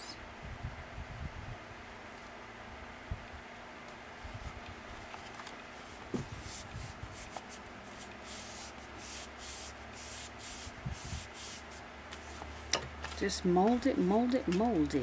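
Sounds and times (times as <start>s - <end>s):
hands rubbing paper: 5.7s - 15.0s.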